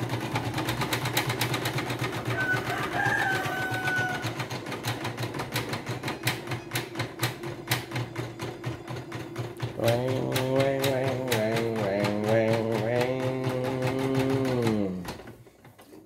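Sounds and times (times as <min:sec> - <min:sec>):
embroidery machine needle clicking: 0:02.9 - 0:15.8.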